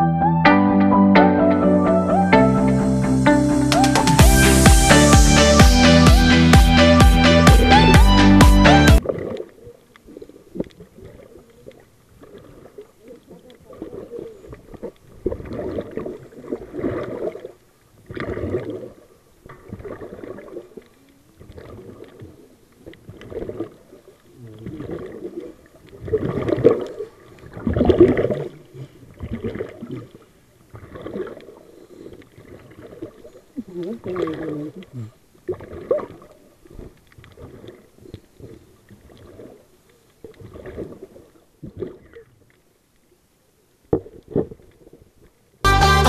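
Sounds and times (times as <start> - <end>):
electronic music: 0.0 - 9.0, 45.7 - 46.0
exhaled bubbles gurgling: 9.0 - 42.4.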